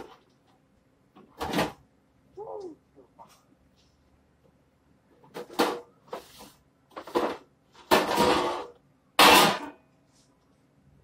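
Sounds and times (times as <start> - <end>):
clattering and rustling of items: 0.0 - 1.9, 2.5 - 10.7.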